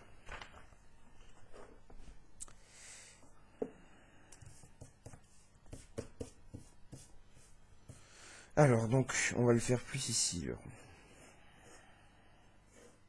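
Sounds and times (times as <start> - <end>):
paper rustling: 0.0 - 2.1.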